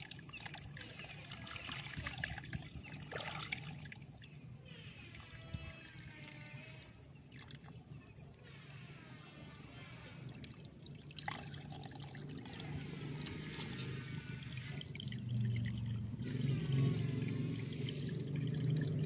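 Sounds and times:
water running: 10.3 - 19.0.

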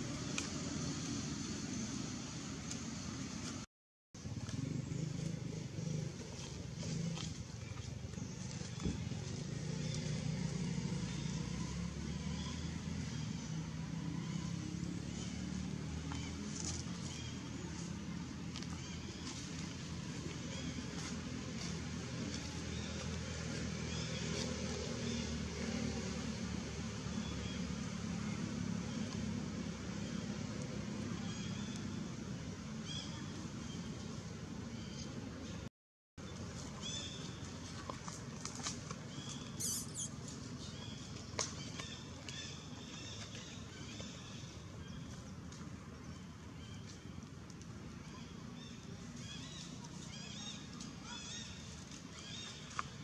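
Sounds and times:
engine running low hum: 0.0 - 53.0
faint high chirp: 39.6 - 40.2.

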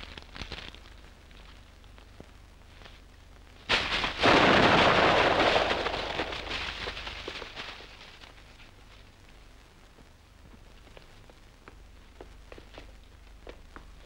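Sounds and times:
explosion: 3.7 - 8.0.

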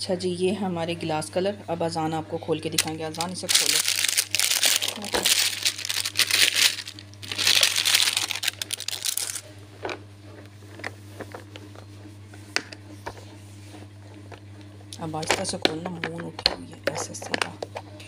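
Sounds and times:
cellophane crinkling and tearing: 2.8 - 9.5.

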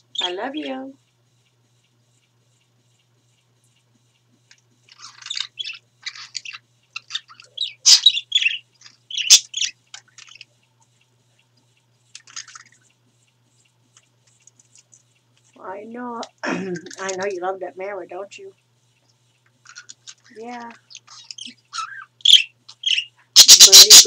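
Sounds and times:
budgerigars chirping and chattering: 4.9 - 10.5, 19.7 - 24.0.

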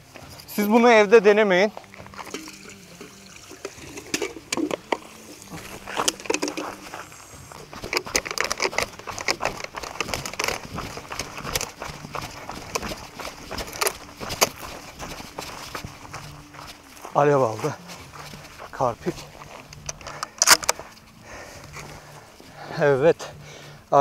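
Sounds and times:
running footsteps on stony ground: 0.0 - 2.6, 3.7 - 24.0
small clicks and crinkling: 3.6 - 22.4.

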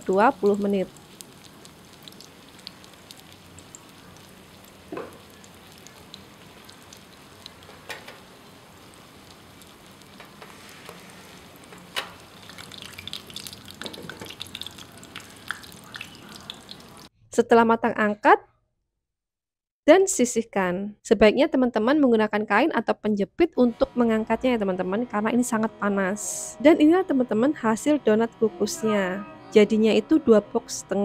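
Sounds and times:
water boiling in steamer pot: 0.0 - 17.1.

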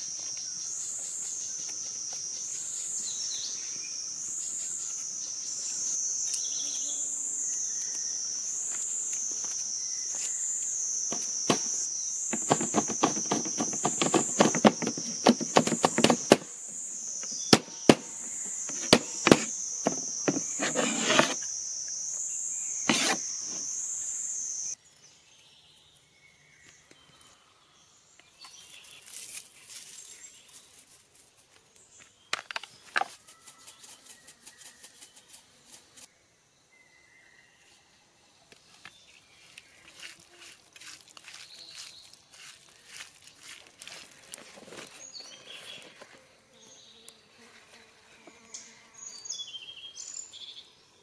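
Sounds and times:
high insect drone: 0.0 - 24.8
knife chopping on wooden board: 11.1 - 16.5, 17.5 - 21.4, 22.9 - 23.2.

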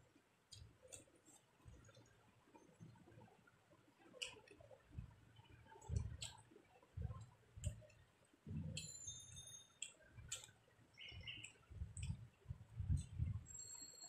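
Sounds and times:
ringing clink: 8.8 - 9.8.

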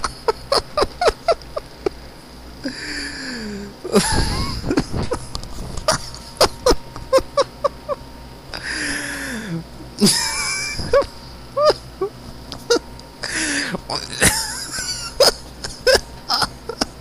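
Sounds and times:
person laughing hard: 0.0 - 2.0, 2.6 - 17.0.

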